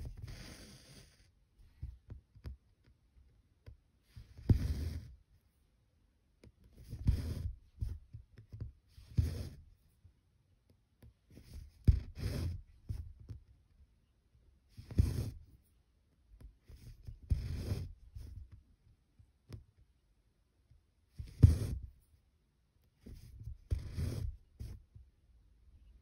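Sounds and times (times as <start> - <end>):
thread rasping through fabric: 3.6 - 5.3, 6.4 - 9.8, 11.0 - 13.5, 14.7 - 15.6, 16.4 - 18.6, 21.1 - 22.2, 22.9 - 25.0
needle thumping through fabric: 4.3 - 5.1, 11.4 - 13.4, 21.2 - 21.9.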